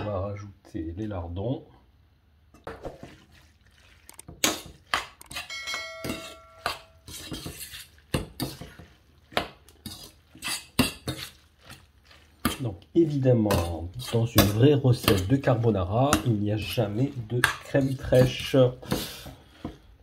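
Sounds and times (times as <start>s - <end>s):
fork clinking and scraping pan: 4.4s - 8.9s, 9.7s - 11.8s, 13.4s - 18.6s
pan ringing from knock: 5.4s - 7.0s.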